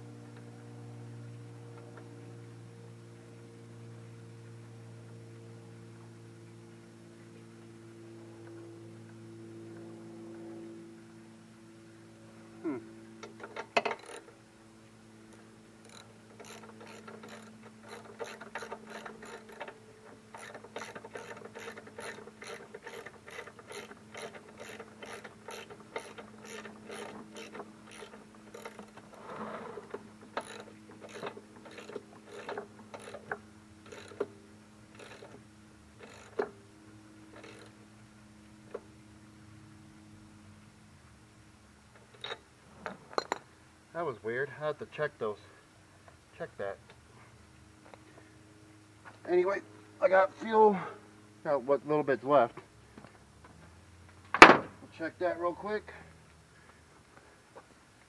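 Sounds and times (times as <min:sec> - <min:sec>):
low steady hum: 0:00.0 - 0:58.0
ratchet wrench clicking: 0:13.3 - 0:14.3, 0:15.8 - 0:28.9, 0:30.4 - 0:33.3, 0:33.9 - 0:34.3, 0:34.9 - 0:35.4, 0:36.0 - 0:36.5, 0:37.4 - 0:37.7.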